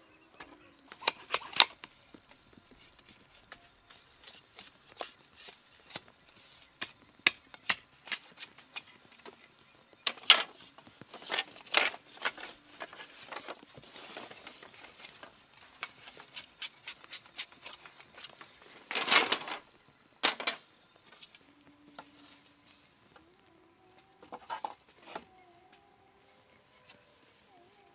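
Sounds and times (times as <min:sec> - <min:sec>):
bamboo cracking: 0:00.9 - 0:03.2
knife splitting bamboo: 0:06.8 - 0:08.9, 0:15.8 - 0:18.3.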